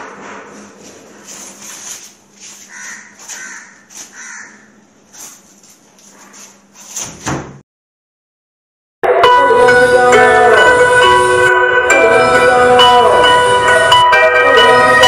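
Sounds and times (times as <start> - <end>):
crow cawing: 2.7 - 4.8
thud at door: 7.0 - 7.6.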